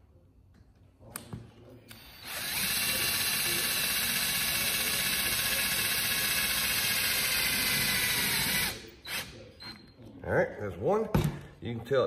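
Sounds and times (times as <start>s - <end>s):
cordless drill running: 1.9s - 9.3s.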